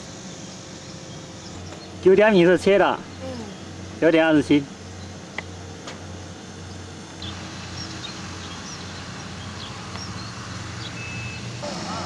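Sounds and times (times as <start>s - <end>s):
farm engine droning: 0.0s - 12.0s
faint high chirps: 10.0s - 12.0s.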